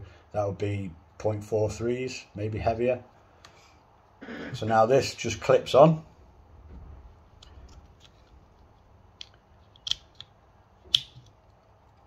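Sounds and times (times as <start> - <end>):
plastic parts clicking and snapping: 7.3 - 12.0.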